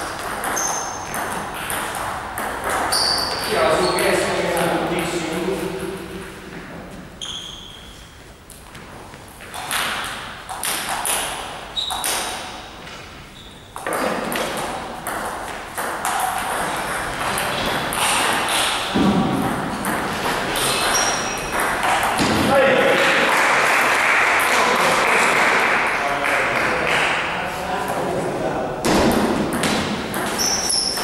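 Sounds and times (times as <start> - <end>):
table tennis balls clicking: 0.0 - 3.6, 9.4 - 12.6, 13.8 - 22.4, 29.0 - 31.0.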